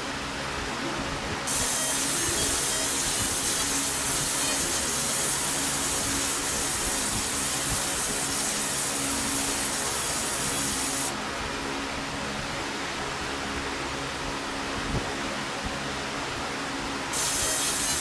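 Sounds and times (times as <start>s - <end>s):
laser engraving hiss: 1.5s - 11.1s, 17.1s - 18.0s.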